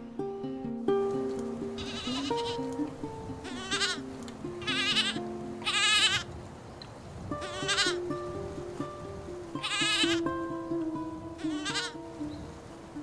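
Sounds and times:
plucked-string music: 0:00.0 - 0:13.0
young goat bleating: 0:01.8 - 0:02.7, 0:03.4 - 0:04.0, 0:04.6 - 0:06.3, 0:07.4 - 0:08.0, 0:09.6 - 0:10.2, 0:11.4 - 0:12.0.

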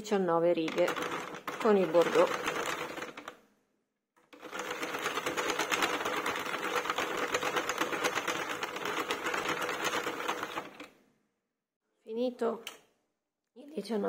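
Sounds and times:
knitting machine needles clicking: 0:00.6 - 0:03.4, 0:04.3 - 0:10.9.

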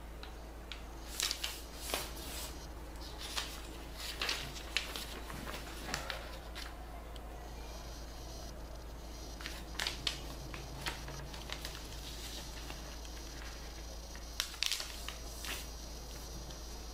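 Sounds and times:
steady low hum: 0:00.0 - 0:16.9
paper rustling and crinkling: 0:01.0 - 0:06.8, 0:09.4 - 0:15.7.

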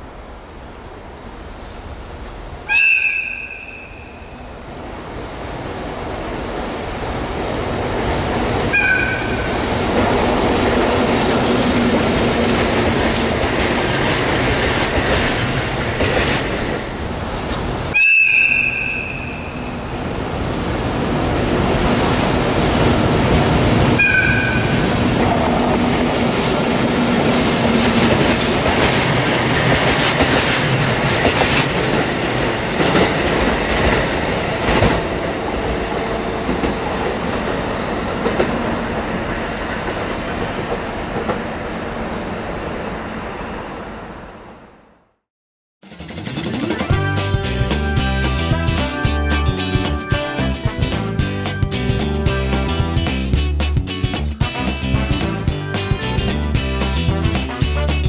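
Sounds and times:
train rumble and wheel clatter: 0:00.0 - 0:44.6, 0:45.9 - 0:58.0
two-tone train horn: 0:02.7 - 0:04.3, 0:08.7 - 0:09.5, 0:17.9 - 0:19.8, 0:24.0 - 0:25.6, 0:46.9 - 0:50.9, 0:57.1 - 0:58.0.

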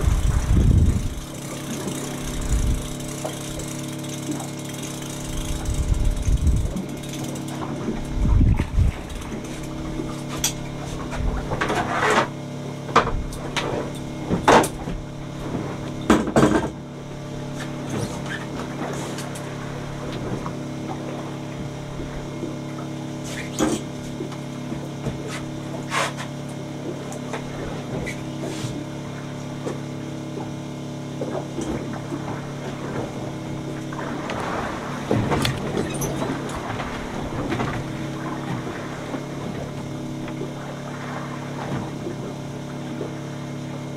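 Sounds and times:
boat engine humming: 0:00.0 - 0:43.9
knocks and clattering of gear: 0:01.5 - 0:12.3, 0:35.1 - 0:37.9.

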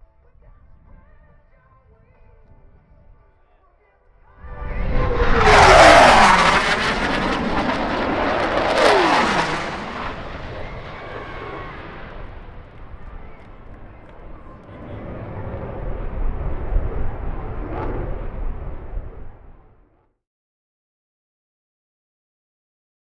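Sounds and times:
low rumble: 0:04.3 - 0:20.0
jet roar passing: 0:04.4 - 0:19.8.

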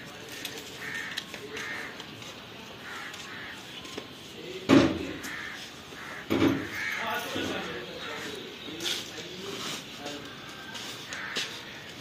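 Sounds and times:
crows cawing: 0:00.3 - 0:02.2, 0:02.8 - 0:03.8, 0:04.9 - 0:08.6, 0:11.0 - 0:12.0.

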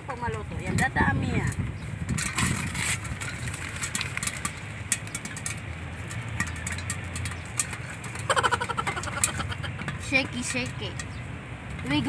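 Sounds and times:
popcorn popping in pot: 0:03.0 - 0:10.5.

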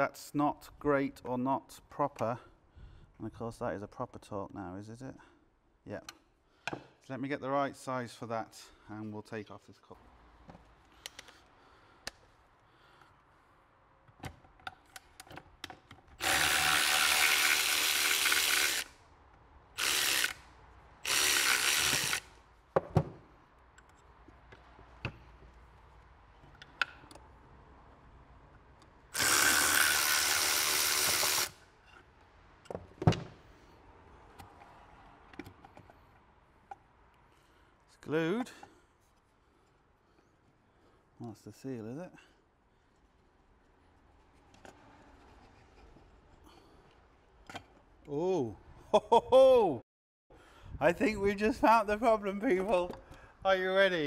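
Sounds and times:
clicks and knocks of parts handled: 0:10.4 - 0:12.3, 0:14.0 - 0:16.2, 0:22.7 - 0:25.7, 0:26.4 - 0:27.3, 0:34.3 - 0:37.2
electric ratchet running: 0:16.2 - 0:18.9, 0:19.8 - 0:20.4, 0:21.0 - 0:22.3, 0:29.2 - 0:31.6.

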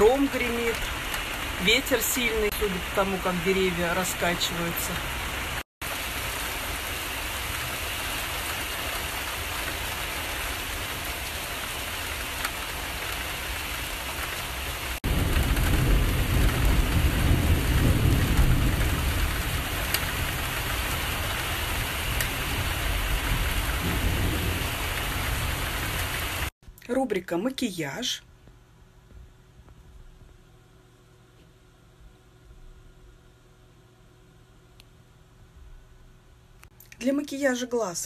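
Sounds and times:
heavy rain hissing: 0:00.0 - 0:26.5
deep thunder rumble: 0:15.0 - 0:26.5.

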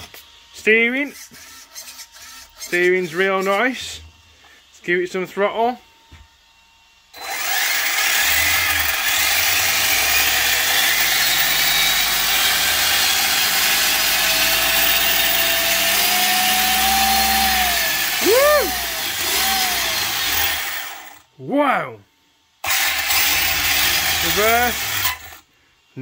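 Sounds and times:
electric motor and drivetrain running: 0:07.2 - 0:21.2, 0:22.6 - 0:25.4.

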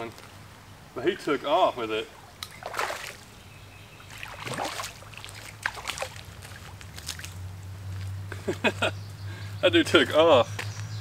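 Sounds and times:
fish splashing in water: 0:02.2 - 0:03.3, 0:04.0 - 0:07.4.

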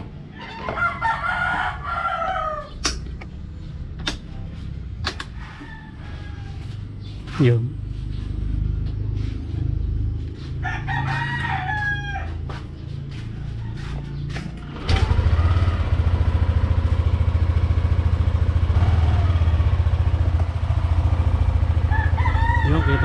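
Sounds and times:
rooster crowing: 0:00.3 - 0:02.8, 0:05.3 - 0:06.9, 0:10.6 - 0:14.4, 0:20.2 - 0:23.0
scooter engine starting and idling: 0:14.5 - 0:23.0.

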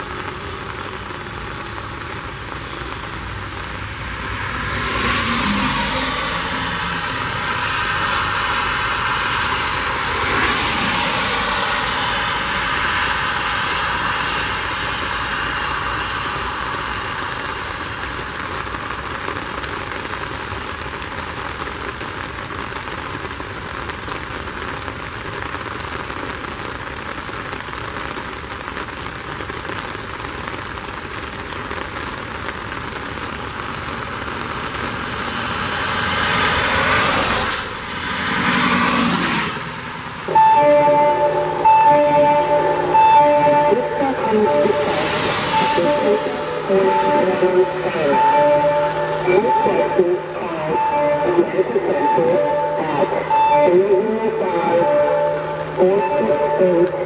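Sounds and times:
tyres hissing on wet road: 0:00.0 - 0:57.0
vehicle passing: 0:03.6 - 0:17.7, 0:34.1 - 0:57.0.

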